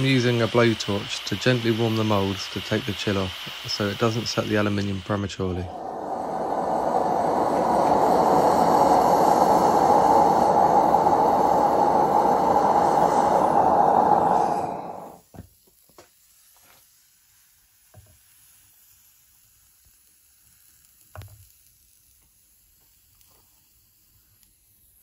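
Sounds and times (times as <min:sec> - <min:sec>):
gas flame roaring: 0:00.0 - 0:15.4.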